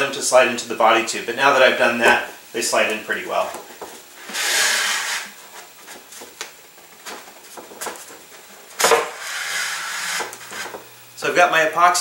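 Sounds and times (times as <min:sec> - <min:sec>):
cardboard tube rubbing: 0:03.6 - 0:10.9
cardboard tube scraping slide: 0:04.2 - 0:06.3, 0:07.0 - 0:10.8.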